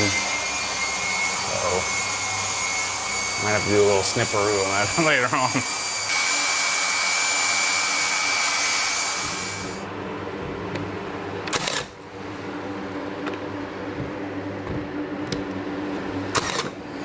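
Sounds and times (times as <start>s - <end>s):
power tool whining: 0.0s - 9.8s.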